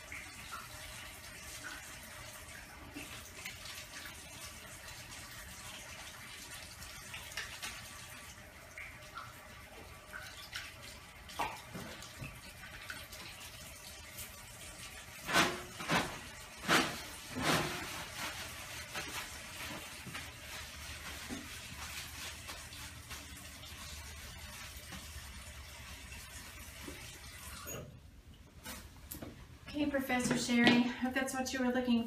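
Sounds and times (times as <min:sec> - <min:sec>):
tap water running into sink: 0:00.0 - 0:28.0
paper towels pulled from dispenser: 0:15.2 - 0:23.4.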